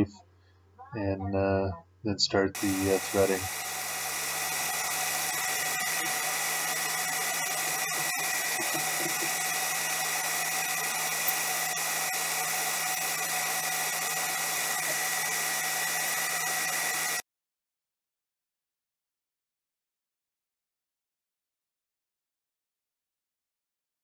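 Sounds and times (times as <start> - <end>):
metal lathe whining: 2.6 - 17.2.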